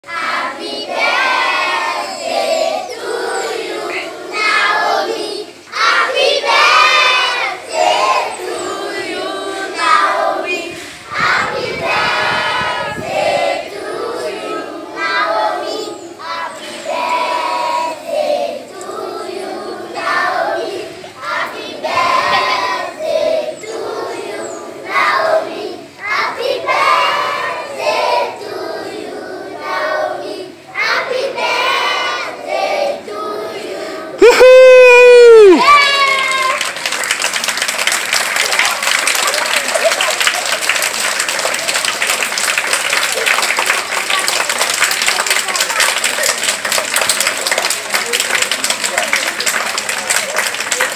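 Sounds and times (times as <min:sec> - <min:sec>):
children singing in unison: 0:00.0 - 0:34.2.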